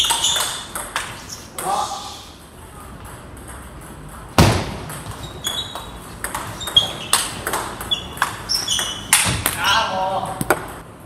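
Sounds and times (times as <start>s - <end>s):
loud thump: 4.4s - 5.0s
table tennis ball clicking: 4.9s - 9.3s.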